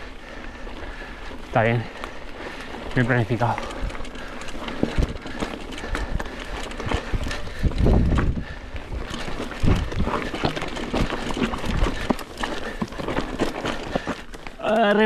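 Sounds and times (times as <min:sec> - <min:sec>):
bike rattling and knocking: 0:00.0 - 0:15.0
tyres crunching on stones: 0:00.4 - 0:15.0.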